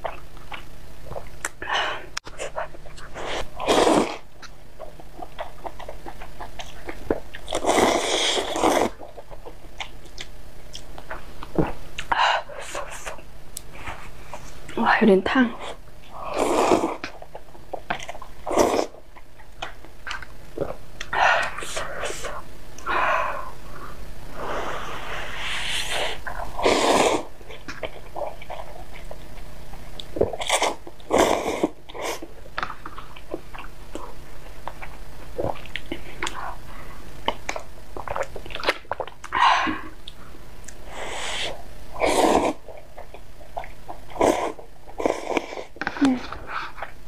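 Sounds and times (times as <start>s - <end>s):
chewing: 0.0s - 1.6s, 4.4s - 12.1s, 17.0s - 21.1s, 27.5s - 31.1s, 37.2s - 39.4s
person slurping noodles: 3.2s - 4.3s, 7.5s - 9.0s, 16.2s - 17.1s, 18.4s - 18.9s, 24.4s - 27.3s, 30.3s - 32.2s, 40.9s - 42.6s, 44.1s - 46.1s.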